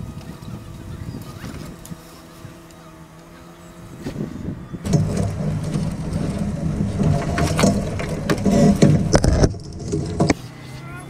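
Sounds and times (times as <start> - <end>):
steady low rumble: 4.8 - 10.3
wire rigging clinking and rattling: 4.8 - 10.4.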